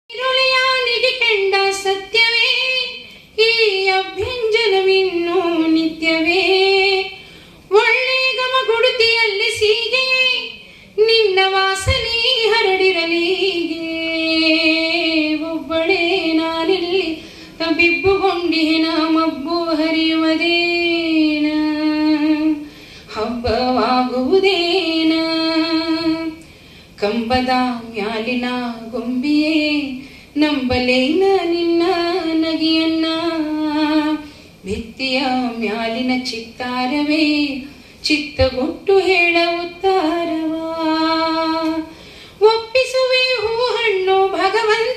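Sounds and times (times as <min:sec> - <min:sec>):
woman singing: 0:00.1 - 0:26.4, 0:27.0 - 0:44.9.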